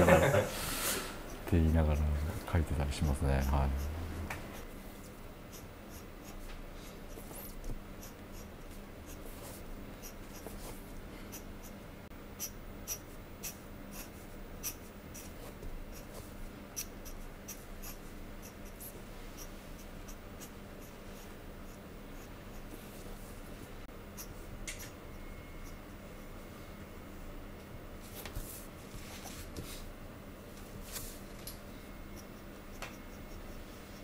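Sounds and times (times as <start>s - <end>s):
pen nib scratching on paper: 1.3s - 6.5s, 7.1s - 11.8s, 12.4s - 22.8s, 25.6s - 25.9s, 32.1s - 34.0s.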